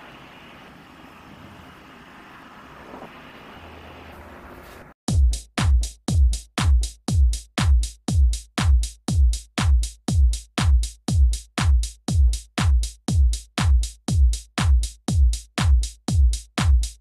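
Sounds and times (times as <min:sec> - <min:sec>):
kick drum beat: 0:05.1 - 0:17.0.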